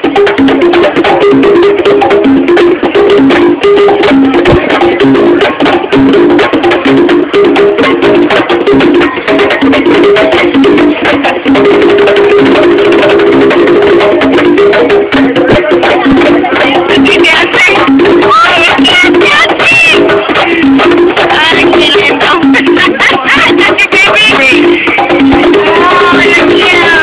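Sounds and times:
conga drums played by hand: 0.0s - 27.0s.

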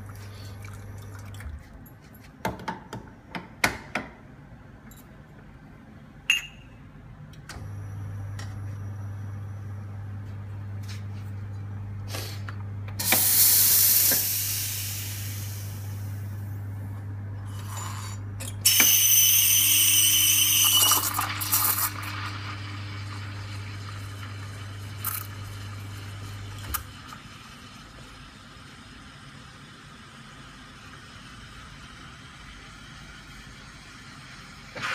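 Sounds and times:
steam wand hissing: 13.0s - 15.9s
espresso machine pump humming: 13.0s - 34.7s.

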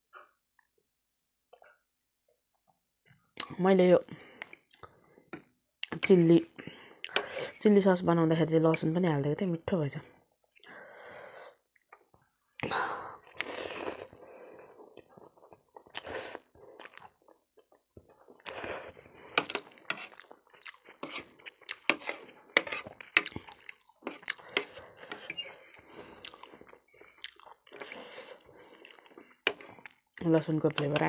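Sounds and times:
wet chewing and smacking: 11.7s - 30.3s
noodles slurping: 12.6s - 17.3s, 18.1s - 30.2s.

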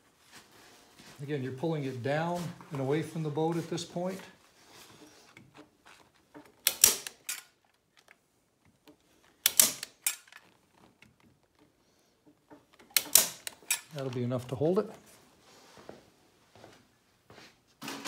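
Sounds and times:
staple gun snaps: 6.6s - 7.5s, 9.4s - 10.3s, 12.9s - 13.8s.

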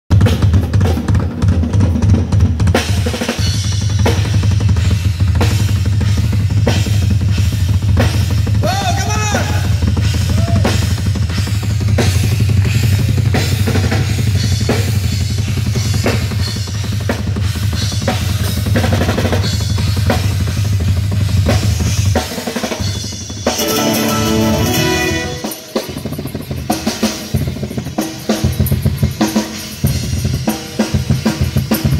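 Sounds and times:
electric guitar notes: 23.5s - 26.0s.

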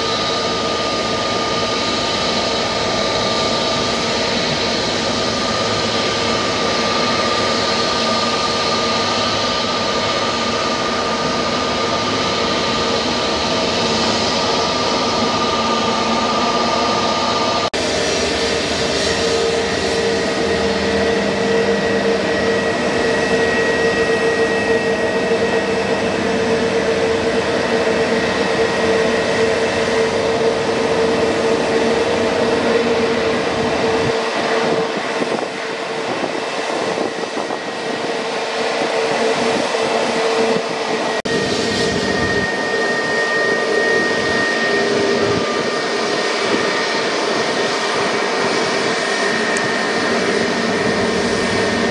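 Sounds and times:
jet engines whining: 0.0s - 51.9s.

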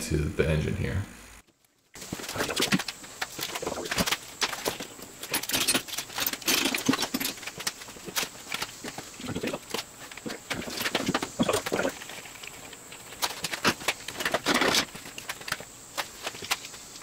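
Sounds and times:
metal chain clinking and rattling: 5.2s - 7.5s.

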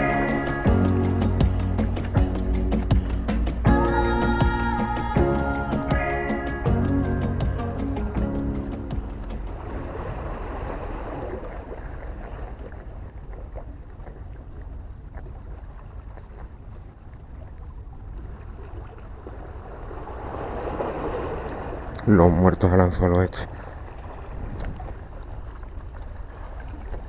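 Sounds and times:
wind buffeting microphone: 23.4s - 26.9s.

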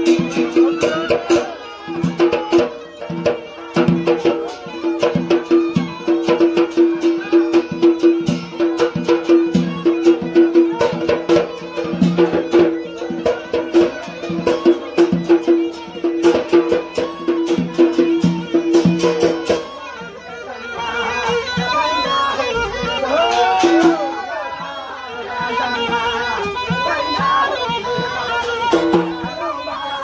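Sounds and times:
fast hand drumming: 0.0s - 19.8s, 25.4s - 29.6s
reed pipe melody: 0.0s - 30.0s.

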